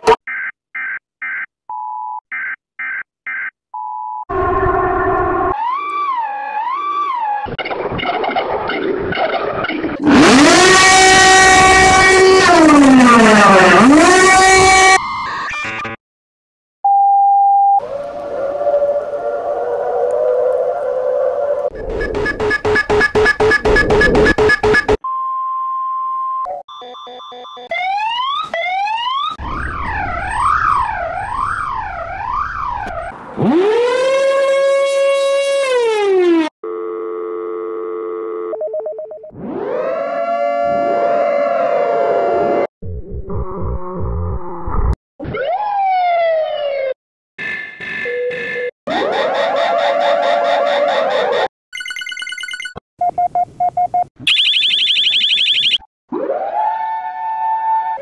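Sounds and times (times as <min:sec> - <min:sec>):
siren-like alarm wail: 0:04.3 - 0:08.4, 0:10.0 - 0:16.0, 0:17.8 - 0:25.0, 0:27.6 - 0:36.5, 0:39.3 - 0:42.7, 0:45.2 - 0:47.0, 0:48.0 - 0:51.5, 0:54.3 - 0:58.0.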